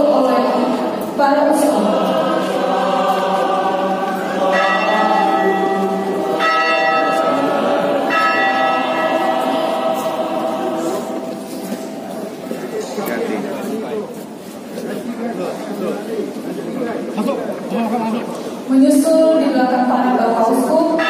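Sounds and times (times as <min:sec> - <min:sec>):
choir singing: 0:00.0 - 0:12.5
bell ringing: 0:04.2 - 0:12.2.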